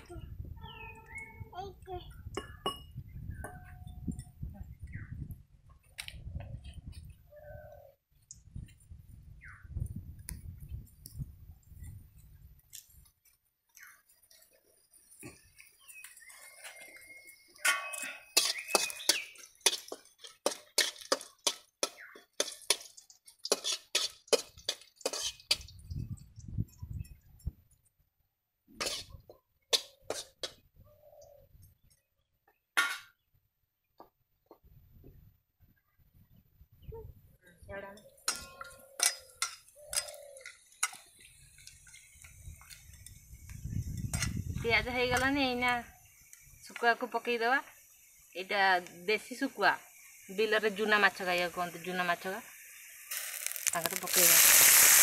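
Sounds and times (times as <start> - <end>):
steel pots and utensils clinking: 17.6 - 25.8, 28.8 - 29.2, 38.2 - 42.7.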